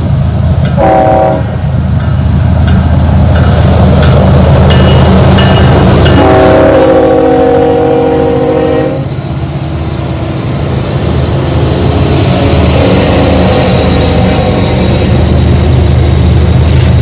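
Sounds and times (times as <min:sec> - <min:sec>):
diesel locomotive engines running: 0:00.0 - 0:17.0
train air horn chord: 0:00.8 - 0:01.6, 0:06.2 - 0:09.1.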